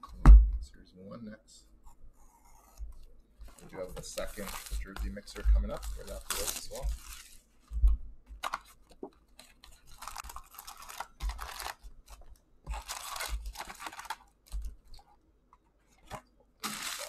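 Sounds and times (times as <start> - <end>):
foil packs rustling and crinkling: 3.4 - 7.5, 9.4 - 15.0, 16.6 - 17.0.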